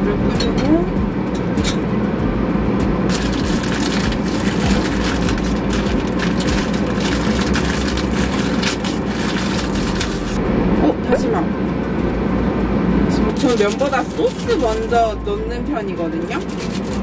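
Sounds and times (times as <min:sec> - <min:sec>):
steady low hum: 0:00.0 - 0:17.0
plastic packet crinkling: 0:03.1 - 0:10.4, 0:13.3 - 0:14.9, 0:16.3 - 0:17.0.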